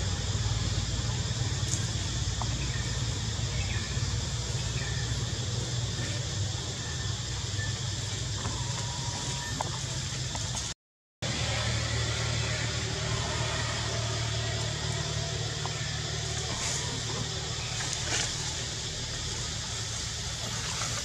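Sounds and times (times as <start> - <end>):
even hiss: 11.3 - 21.0.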